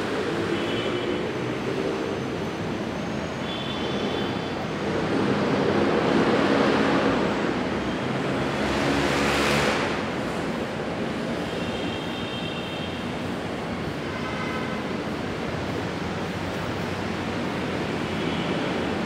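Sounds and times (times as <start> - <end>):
road traffic: 0.0 - 19.0
vehicle passing loudly: 4.8 - 10.3.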